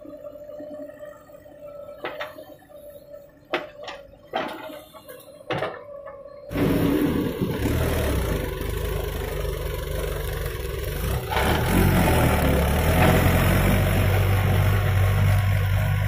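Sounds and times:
tractor diesel engine running: 6.4s - 16.0s.

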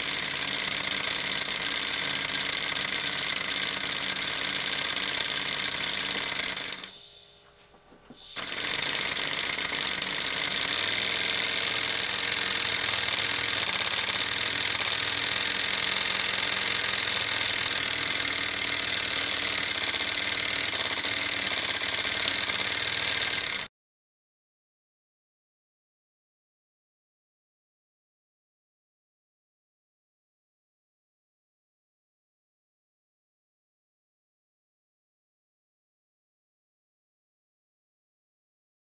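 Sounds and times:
model steam engine running: 0.0s - 7.0s, 8.3s - 23.7s.

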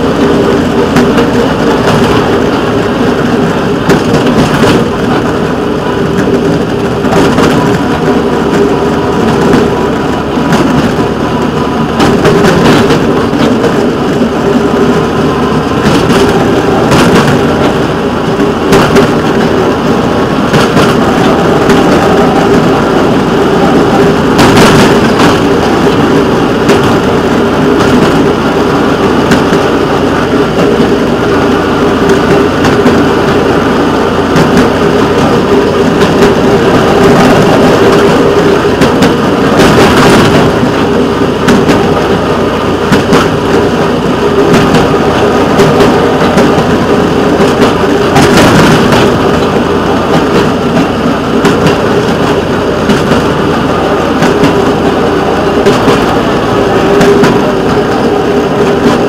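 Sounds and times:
rail vehicle engine running: 0.0s - 59.0s
wheels clacking over rail joints: 0.0s - 59.0s.

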